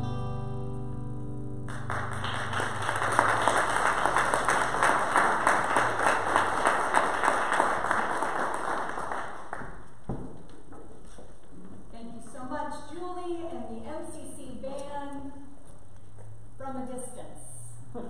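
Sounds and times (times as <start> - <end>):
guitar chord ringing: 0.0 - 3.4
small group clapping: 1.6 - 10.2.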